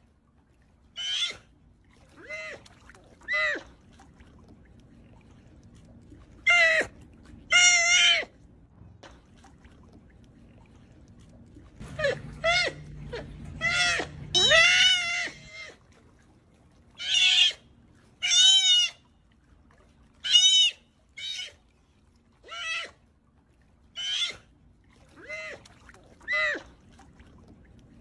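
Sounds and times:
sea otter squealing calls: 0:01.0 - 0:01.5, 0:06.4 - 0:08.4, 0:12.0 - 0:15.8, 0:17.0 - 0:19.1, 0:20.2 - 0:21.6, 0:22.4 - 0:23.0, 0:23.9 - 0:24.5.

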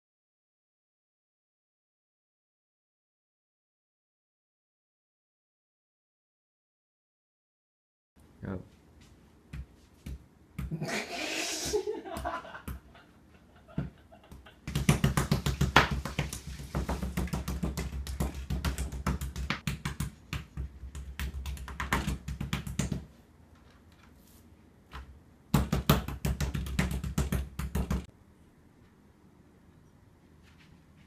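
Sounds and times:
knife chopping on plastic board: 0:14.7 - 0:23.1.

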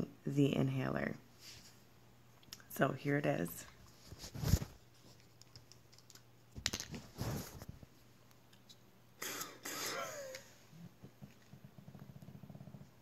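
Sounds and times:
inhaler puff hiss: 0:09.2 - 0:10.2.

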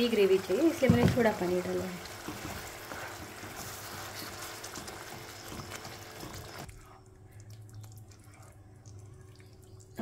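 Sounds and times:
sauce sizzling and bubbling in pan: 0:00.0 - 0:06.7.

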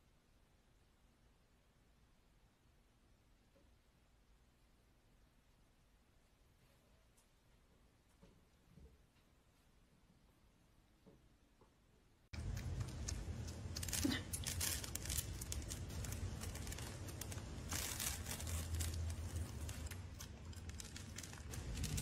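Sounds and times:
steady low hum: 0:12.3 - 0:22.0
kittens crunching dry kibble: 0:12.4 - 0:22.0.

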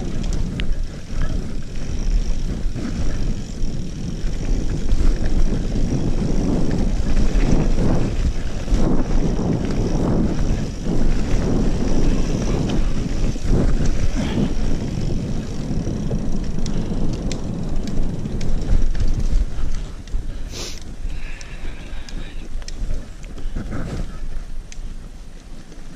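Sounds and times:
wind rushing over microphone: 0:00.0 - 0:25.3
bike clicking and rattling: 0:00.0 - 0:25.9
bike tyre rumble on dirt: 0:00.0 - 0:25.9.

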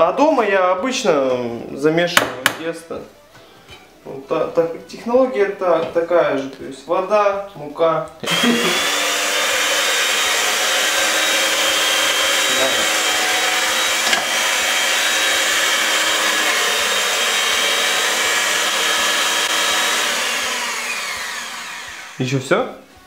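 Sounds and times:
electric hand mixer whining: 0:08.2 - 0:22.4.

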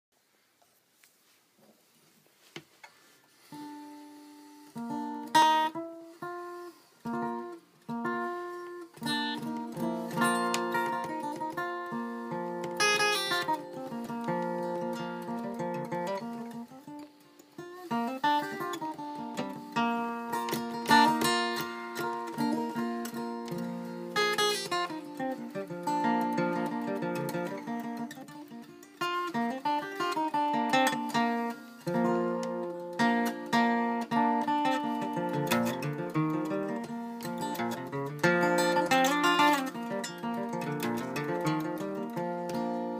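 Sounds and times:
acoustic guitar playing: 0:03.3 - 0:42.9.

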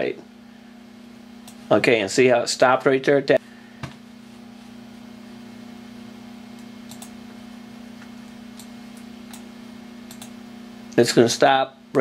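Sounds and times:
computer fan hum: 0:00.0 - 0:12.0.

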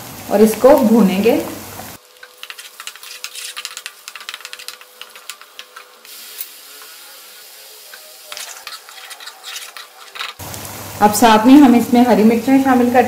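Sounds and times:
onions sizzling in hot oil: 0:00.0 - 0:13.0
spoon stirring in metal pot: 0:02.2 - 0:06.1, 0:07.9 - 0:10.4.

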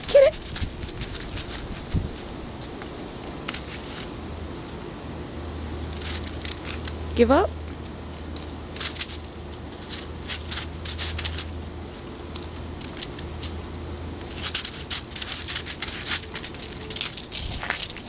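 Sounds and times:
footsteps crunching on frozen grass: 0:14.2 - 0:18.0.

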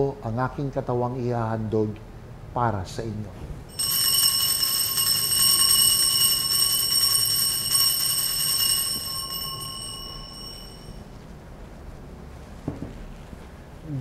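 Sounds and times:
altar bell ringing: 0:03.7 - 0:11.2.

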